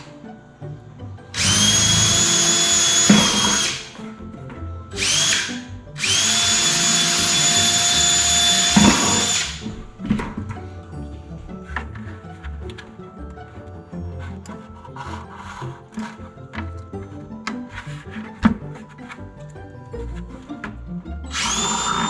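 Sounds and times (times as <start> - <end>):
cordless drill whining: 1.4 - 4.0, 5.0 - 9.7, 21.3 - 22.0.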